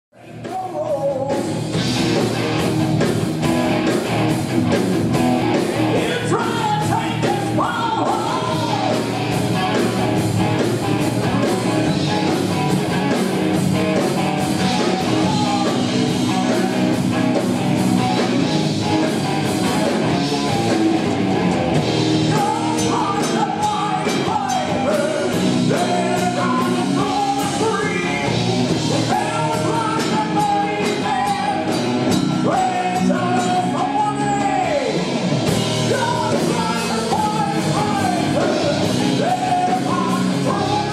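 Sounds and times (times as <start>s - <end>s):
man singing: 0.1s - 1.8s, 5.9s - 10.0s, 11.2s - 12.4s, 14.6s - 17.4s, 22.2s - 35.2s, 35.8s - 40.9s
bass guitar: 0.2s - 40.9s
drum kit: 0.2s - 40.9s
electric guitars: 0.3s - 40.9s.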